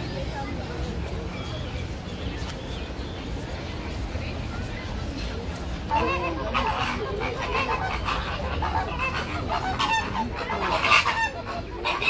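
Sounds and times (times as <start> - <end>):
flamingos honking: 5.9 - 12.0.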